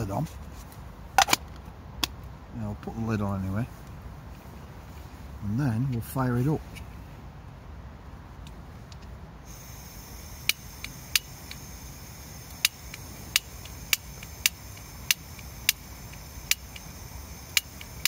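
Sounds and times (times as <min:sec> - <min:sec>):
gas hissing from stove burner: 0:09.4 - 0:18.0
igniter clicks: 0:09.5 - 0:18.0.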